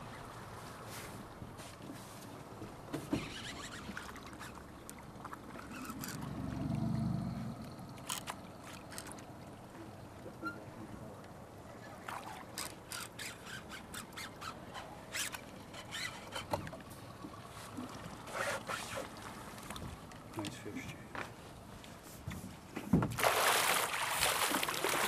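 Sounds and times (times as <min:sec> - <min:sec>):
fish splashing at the surface: 0:23.2 - 0:25.0.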